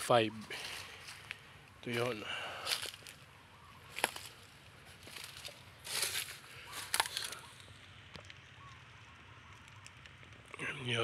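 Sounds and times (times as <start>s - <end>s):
faint low background noise: 0.0s - 11.0s
short crunching scuffs: 3.9s - 7.4s.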